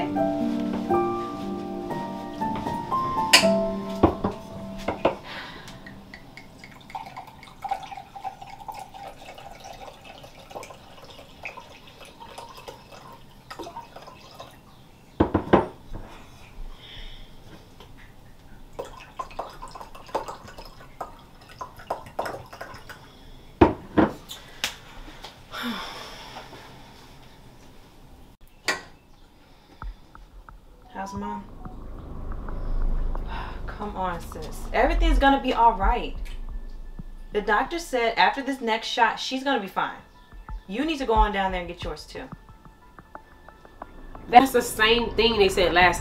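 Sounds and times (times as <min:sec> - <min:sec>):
wine pouring into a glass: 0:06.1 - 0:14.6, 0:18.8 - 0:22.9.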